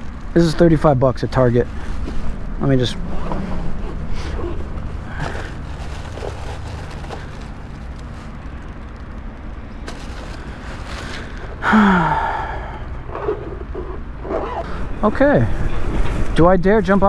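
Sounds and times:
low rumble: 0:00.0 - 0:14.2
wordless sigh or grunt: 0:11.6 - 0:12.7.

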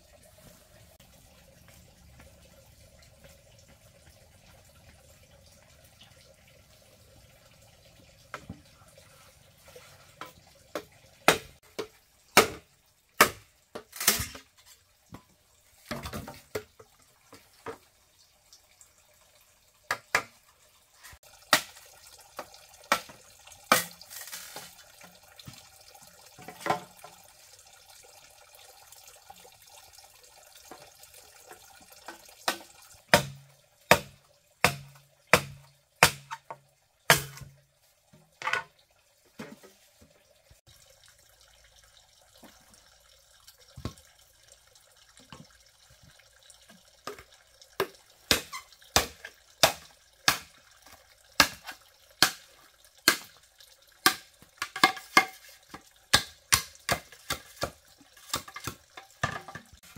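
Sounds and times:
machete chopping bamboo: 0:11.3 - 0:11.6, 0:12.4 - 0:12.6, 0:13.2 - 0:13.4, 0:32.5 - 0:36.5, 0:37.1 - 0:37.6, 0:48.3 - 0:50.6, 0:53.1 - 0:53.3.

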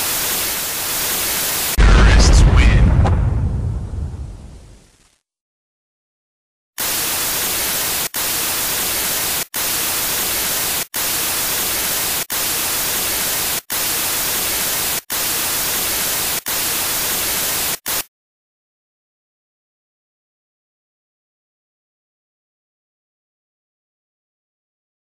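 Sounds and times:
loud white-noise static: 0:00.0 - 0:01.8, 0:06.8 - 0:18.1.

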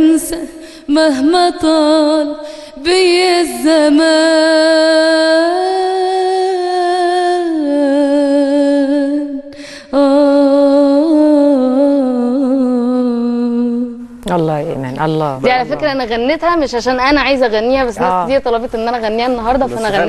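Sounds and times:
woman singing: 0:00.0 - 0:14.2
singer breathing: 0:00.5 - 0:00.9, 0:02.4 - 0:02.8, 0:09.5 - 0:10.0.

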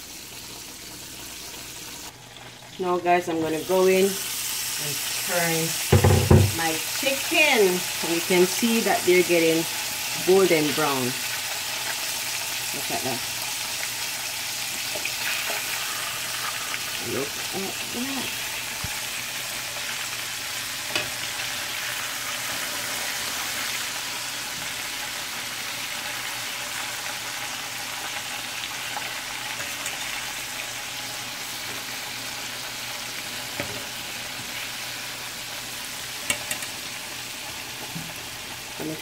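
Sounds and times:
chicken sizzling in oil: 0:00.0 - 0:39.0.

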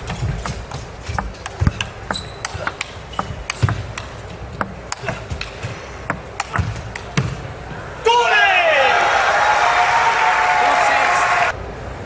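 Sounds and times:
table tennis ball clicking: 0:01.2 - 0:07.2.

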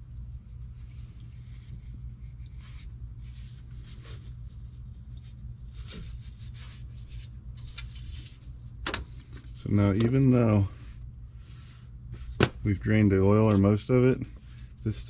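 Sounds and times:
steady low hum: 0:00.0 - 0:15.0
gloved hand rubbing and scraping: 0:00.5 - 0:08.7.

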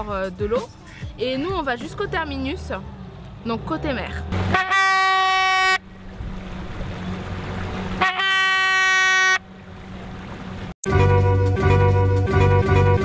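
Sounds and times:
hand-held horn blown: 0:04.5 - 0:05.8, 0:08.0 - 0:09.4, 0:10.8 - 0:13.0
plucked-string music: 0:10.8 - 0:13.0.

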